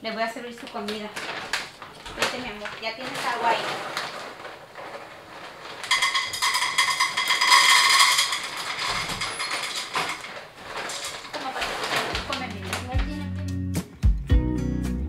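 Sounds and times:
bag rustling: 0:00.5 - 0:13.4
kibble rattling into a bowl: 0:01.2 - 0:13.1.

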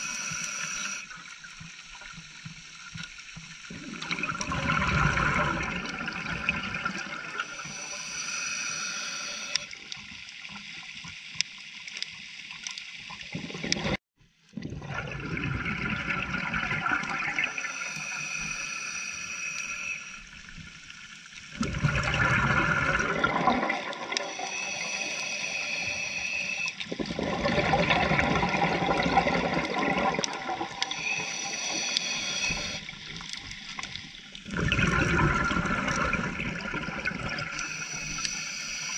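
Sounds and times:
hissing regulator inhalations: 0:00.0 - 0:01.1, 0:07.3 - 0:09.8, 0:17.3 - 0:20.4, 0:24.0 - 0:26.8, 0:30.6 - 0:33.0, 0:37.5 - 0:38.9
gurgling exhaled bubbles: 0:03.7 - 0:08.2, 0:14.6 - 0:18.4, 0:21.5 - 0:33.3, 0:34.3 - 0:38.9.

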